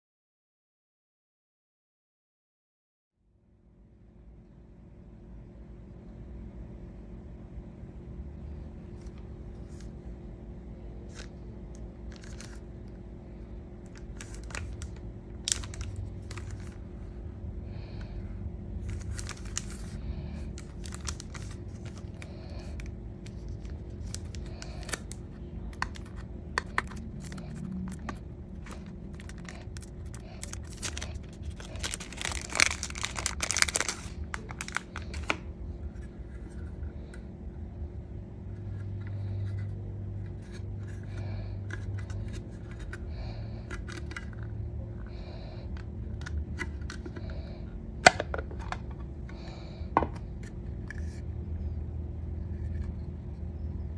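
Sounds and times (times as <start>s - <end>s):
plastic packaging crinkling: 12.1s - 12.9s, 13.8s - 16.8s, 18.8s - 35.5s.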